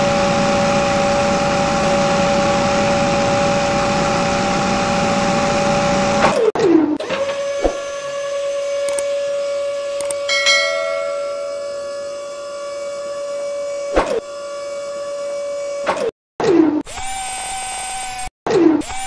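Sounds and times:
click: 8.9 - 9.1, 10.0 - 10.2.

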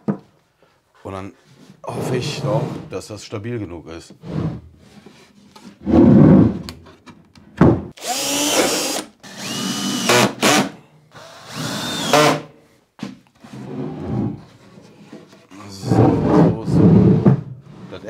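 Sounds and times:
cordless drill whining: 8.0 - 12.5.

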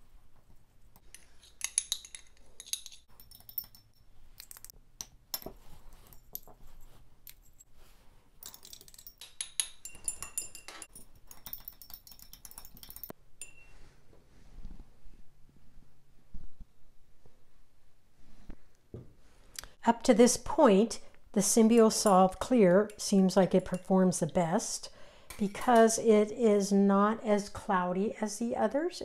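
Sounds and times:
glass handling: 1.1 - 7.6, 8.4 - 13.8
metal spatula clinking on glass: 8.5 - 13.8.

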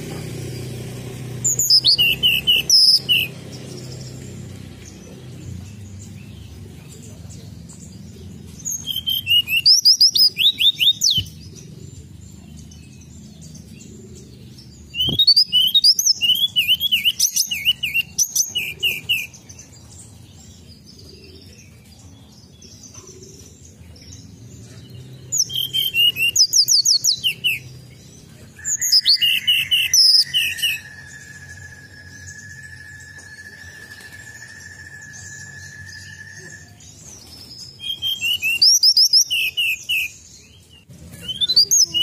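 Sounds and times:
bird singing whistled trills: 1.4 - 4.4, 8.5 - 11.5, 14.5 - 22.3, 25.3 - 42.0.

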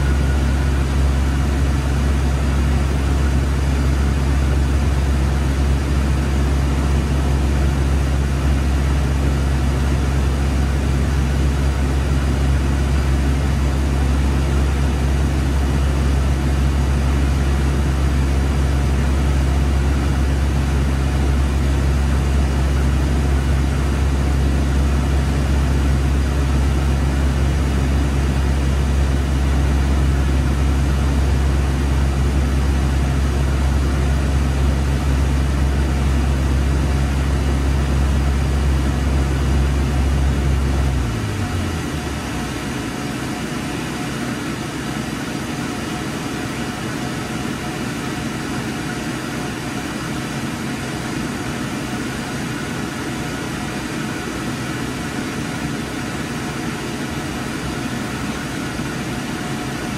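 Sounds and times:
low motor hum: 0.0 - 43.5.

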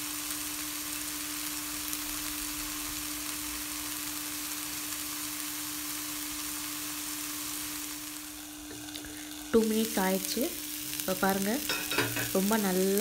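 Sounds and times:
food sizzling in a pan: 0.0 - 13.0.

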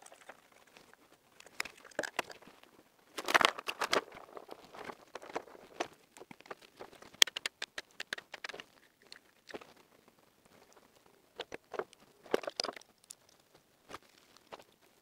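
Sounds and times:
wires clicking and snapping: 3.1 - 9.8, 10.6 - 14.6.

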